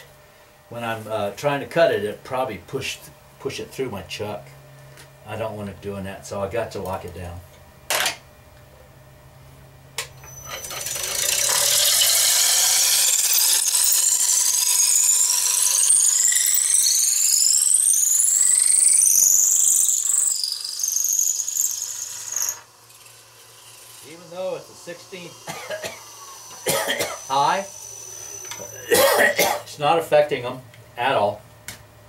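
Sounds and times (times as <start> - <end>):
shrill wood cutting whine: 10.0 - 31.4.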